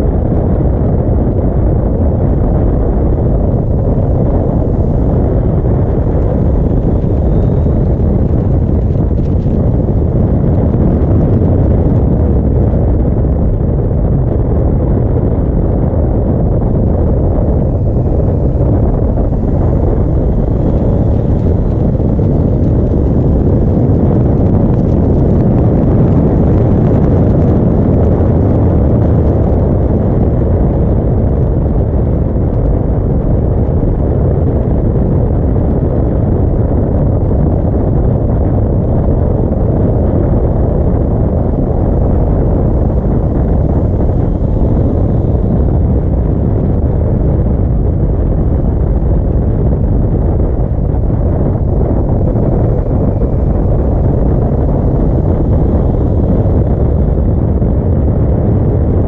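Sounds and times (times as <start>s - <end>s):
wind rush on microphone: 0.0s - 59.0s
motorcycle engine cruising: 3.2s - 12.5s, 15.7s - 26.7s.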